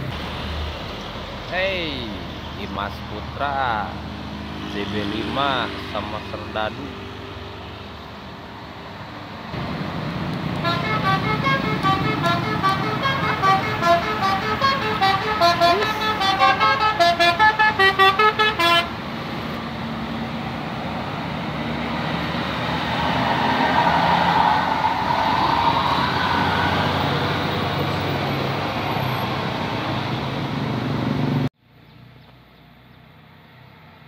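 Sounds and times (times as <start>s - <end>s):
bus engine and tyres rumbling: 0.0s - 34.0s
multi-tone bus horn melody: 10.6s - 19.0s.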